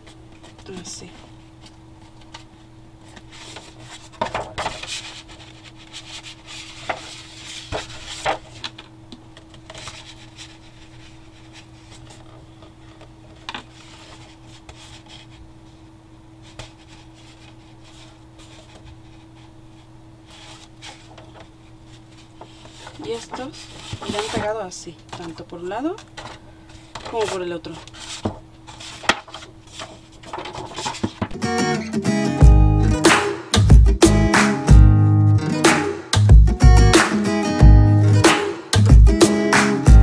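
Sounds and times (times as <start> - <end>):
faint steady hum: 0.0 - 31.4
cardstock rustling: 0.4 - 15.5, 16.4 - 31.4.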